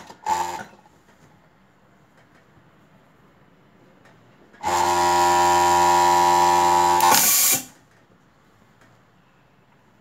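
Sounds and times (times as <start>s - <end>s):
sewing machine high whine: 0.0s - 0.8s, 4.6s - 7.7s.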